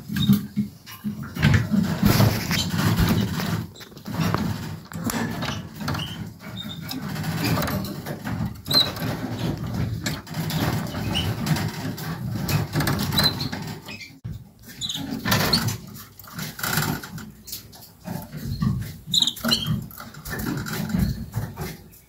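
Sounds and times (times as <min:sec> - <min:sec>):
scratching and rustling in cage: 0:00.0 - 0:22.0
canary chirps: 0:12.7 - 0:15.8, 0:18.3 - 0:20.4.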